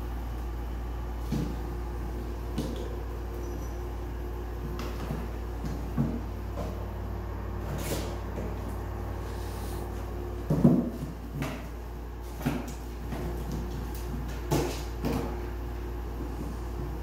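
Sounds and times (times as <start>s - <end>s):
steady low hum: 0.0s - 17.0s
kittens thudding cardboard box: 4.6s - 8.9s, 9.9s - 15.5s.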